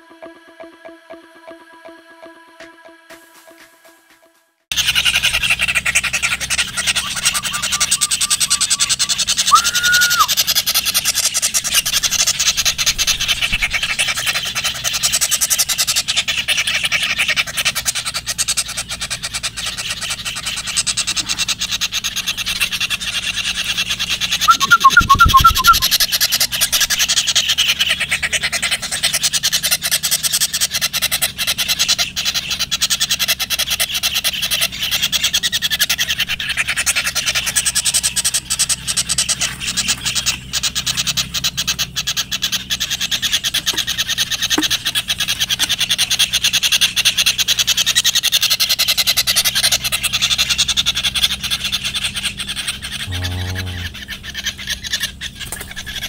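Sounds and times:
chorus of rasping animal calls: 0:04.7 - 0:56.0
quick pips: 0:24.4 - 0:26.3.

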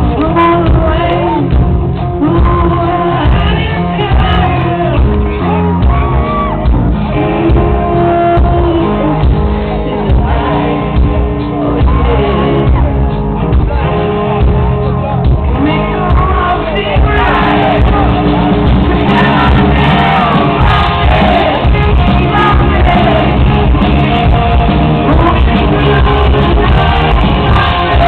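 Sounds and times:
live rock band playing: 0:00.0 - 0:28.0
man singing and shouting: 0:15.1 - 0:23.8, 0:25.0 - 0:28.0.

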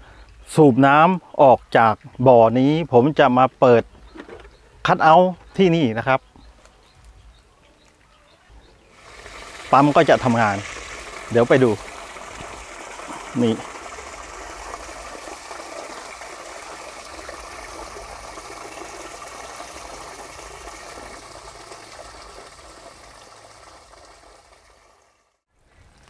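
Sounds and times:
pump rushing water: 0:08.9 - 0:25.4.

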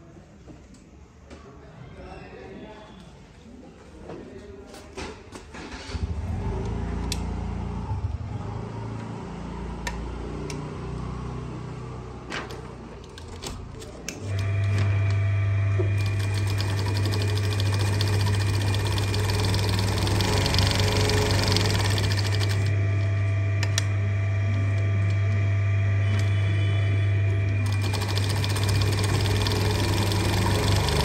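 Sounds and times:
sewing machine running: 0:15.9 - 0:23.1, 0:26.0 - 0:31.0
sewing machine clicks: 0:16.0 - 0:22.7, 0:27.6 - 0:31.0.

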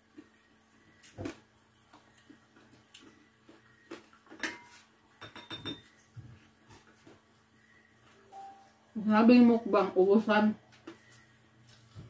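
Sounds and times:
cutlery clinking on plates: 0:04.3 - 0:06.0.

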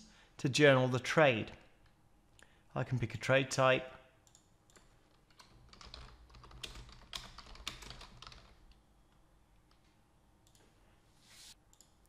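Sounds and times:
typing on computer keyboard: 0:04.3 - 0:08.8.

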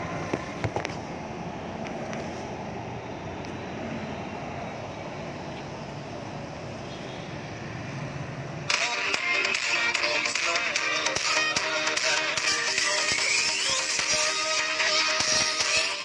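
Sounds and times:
loud music: 0:08.7 - 0:16.0.

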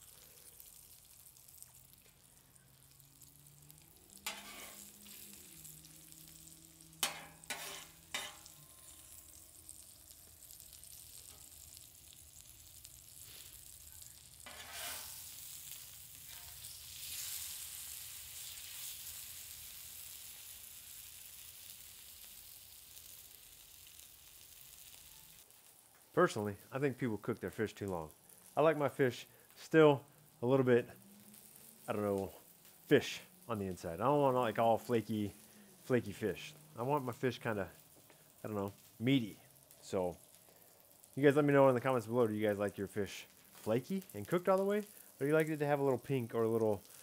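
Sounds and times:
fish sizzling on a griddle: 0:00.0 - 0:47.0
metal spatula clicking on griddle: 0:04.2 - 0:04.8, 0:07.0 - 0:08.6, 0:14.4 - 0:15.1.

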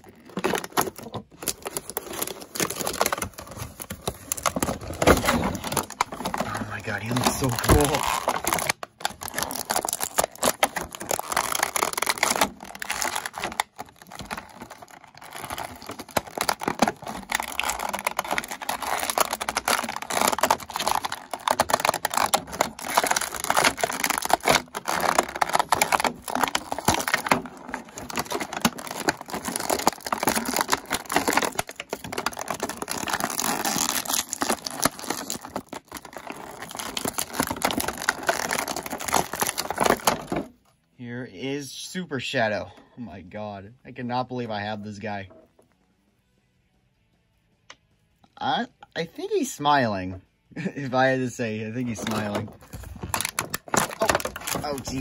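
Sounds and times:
plastic bag crinkling: 0:00.0 - 0:40.5, 0:51.9 - 0:55.0.

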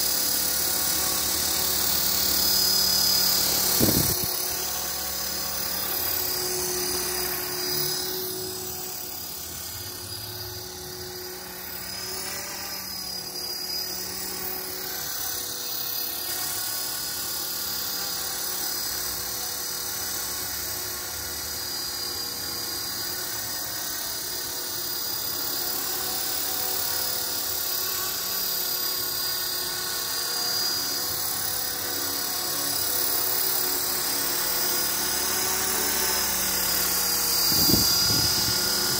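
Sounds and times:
electric motor whine: 0:00.0 - 0:38.9
helicopter rotors whirring: 0:00.0 - 0:38.9.

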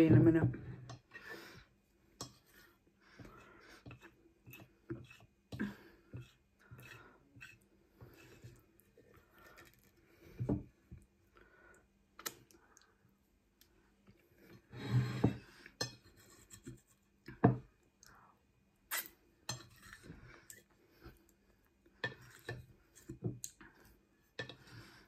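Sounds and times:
wooden fork scraping ceramic plate: 0:02.2 - 0:05.3, 0:06.1 - 0:08.6.

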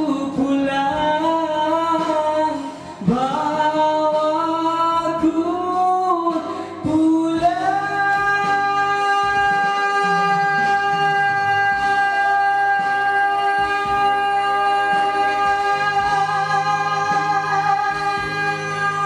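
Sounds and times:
man singing into microphone: 0:00.0 - 0:19.0.

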